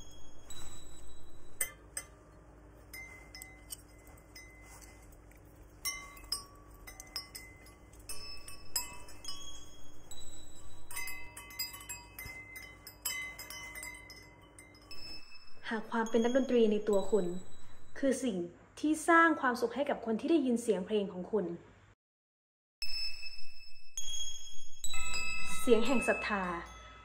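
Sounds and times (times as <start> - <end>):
clinks of hooks and chain: 0.0 - 16.5
metal wind chimes ringing: 0.0 - 18.1, 22.8 - 27.0.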